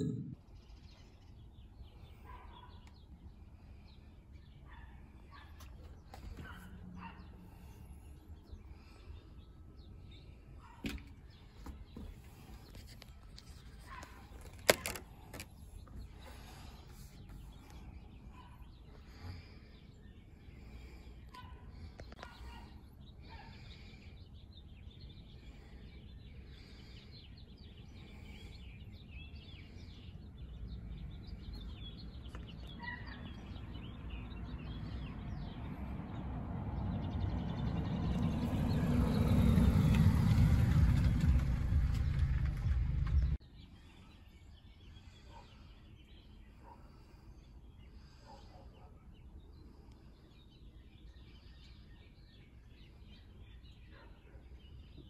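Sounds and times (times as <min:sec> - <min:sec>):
small birds chirping: 0:00.0 - 0:55.0
low rumbling noise: 0:37.0 - 0:43.4.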